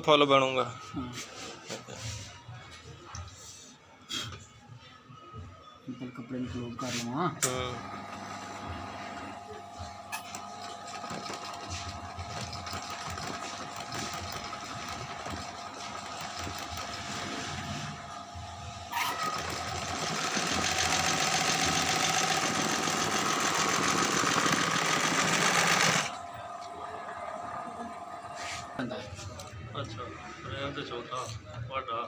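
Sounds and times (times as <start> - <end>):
sewing machine motor humming: 7.5 - 28.8
sewing machine stitching fast: 10.1 - 18.0, 18.9 - 26.2.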